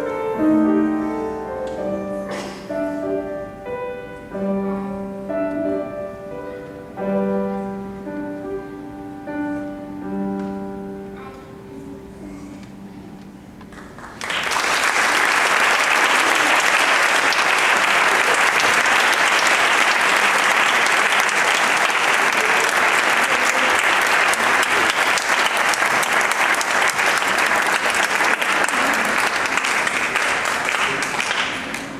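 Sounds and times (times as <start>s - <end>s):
grand piano chord: 0.0s - 13.7s
audience applauding: 13.7s - 31.9s.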